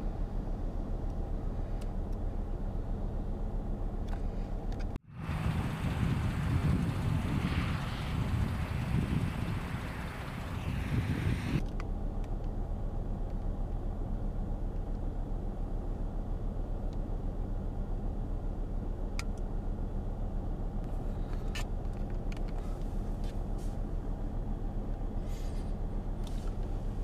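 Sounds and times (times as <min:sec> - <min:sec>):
wind noise on microphone: 0:05.0 - 0:11.6
vehicle engine idling: 0:05.1 - 0:12.1.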